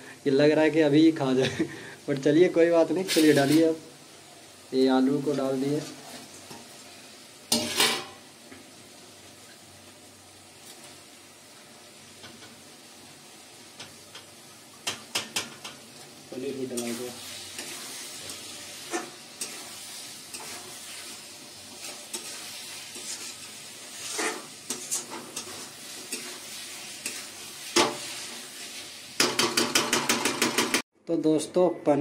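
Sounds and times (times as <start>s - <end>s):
food sizzling in a pan: 0.0s - 30.8s
spatula scraping a steel pan: 17.5s - 21.1s, 21.7s - 28.3s.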